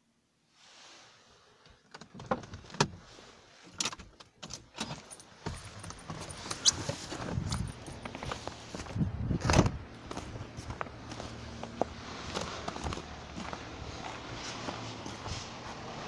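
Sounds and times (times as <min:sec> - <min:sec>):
keys jangling: 0:04.6 - 0:08.4.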